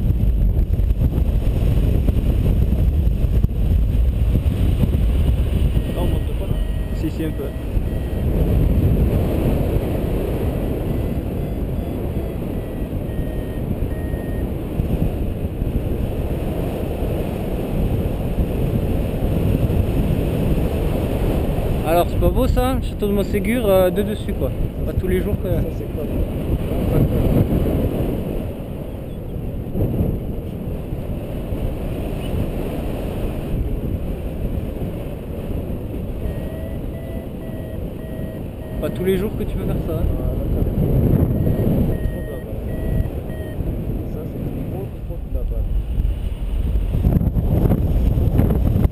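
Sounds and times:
wind buffeting the microphone: 0:00.0 - 0:48.9
faint short beeps: 0:05.7 - 0:08.6, 0:10.8 - 0:14.5, 0:36.2 - 0:40.3, 0:41.2 - 0:43.6.

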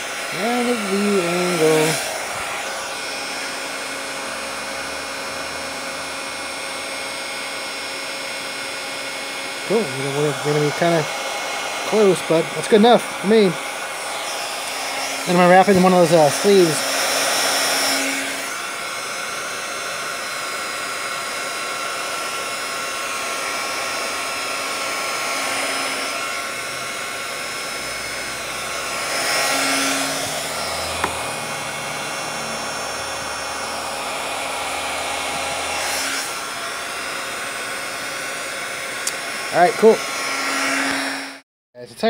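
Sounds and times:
heat gun hissing with faint whine: 0:11.8 - 0:18.7.

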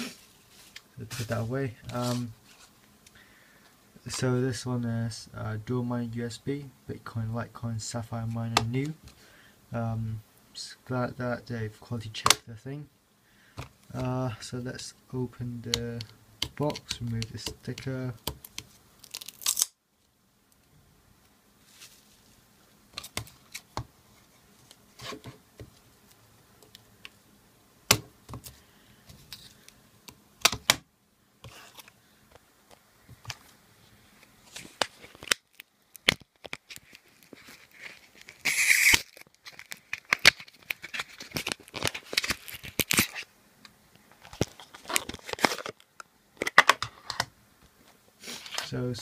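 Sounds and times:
loud tearing: 0:19.0 - 0:19.8, 0:37.7 - 0:40.5.

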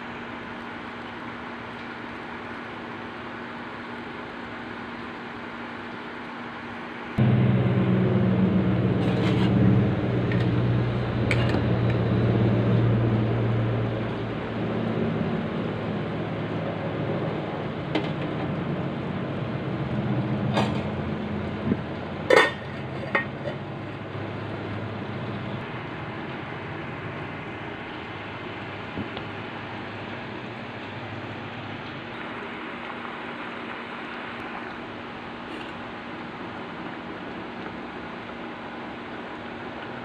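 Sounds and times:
pot boiling hard: 0:00.0 - 0:40.0
metal lid clinking on pot: 0:22.3 - 0:23.6.

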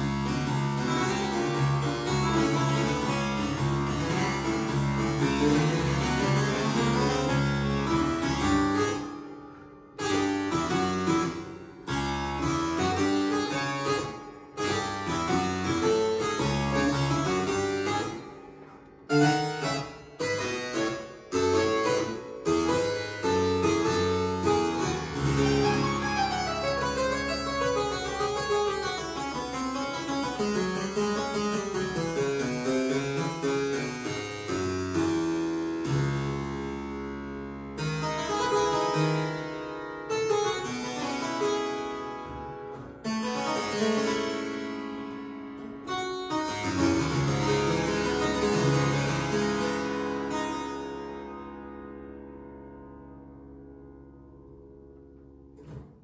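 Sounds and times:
harpsichord blues piece: 0:00.0 - 0:56.0.

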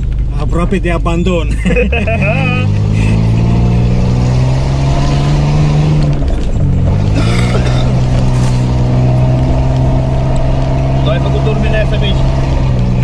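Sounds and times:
car engine running under load: 0:00.0 - 0:13.0.

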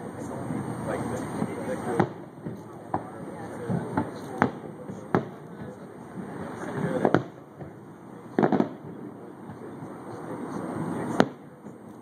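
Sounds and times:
distant fireworks booms: 0:00.0 - 0:12.0
sharp firework crack: 0:01.4 - 0:09.7, 0:11.0 - 0:11.6.

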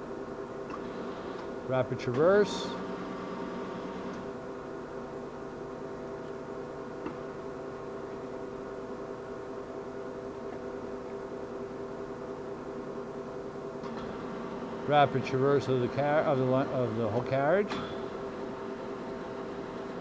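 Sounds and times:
lathe gearing whine: 0:00.0 - 0:13.0, 0:13.6 - 0:20.0.

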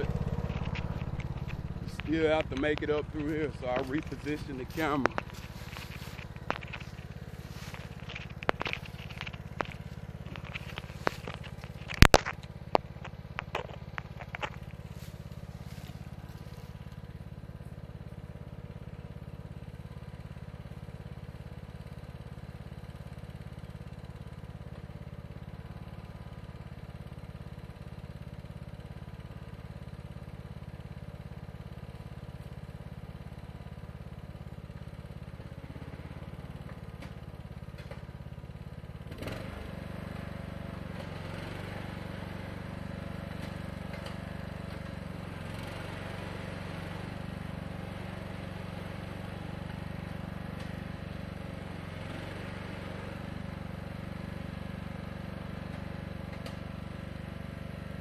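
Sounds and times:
sharp clicks and crackles: 0:00.0 - 0:15.4
lawn tractor engine humming: 0:00.0 - 0:58.0.

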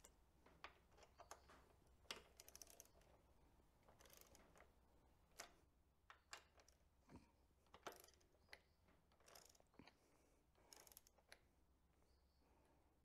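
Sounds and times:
torque wrench clicking: 0:07.8 - 0:08.6, 0:09.2 - 0:09.6, 0:10.7 - 0:11.4.

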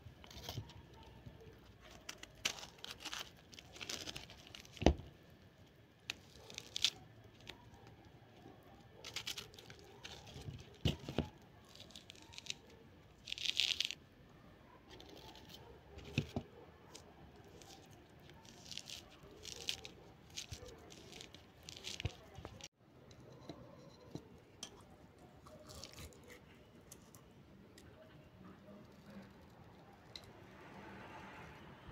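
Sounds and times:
knife cutting orange peel: 0:25.5 - 0:26.5.

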